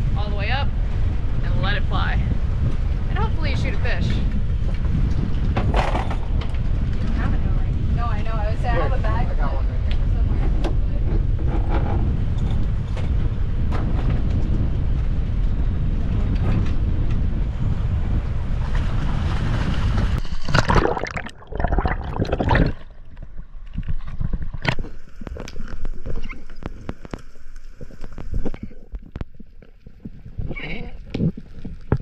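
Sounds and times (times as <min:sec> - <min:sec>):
boat noise: 0:00.0 - 0:32.0
wind buffeting microphone: 0:00.0 - 0:32.0
loud splashing: 0:18.7 - 0:26.1
underwater sharp clicks: 0:20.4 - 0:30.5.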